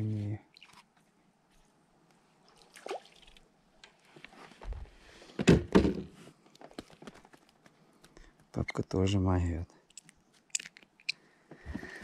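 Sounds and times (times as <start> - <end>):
water splashing and dripping: 2.4 - 3.5.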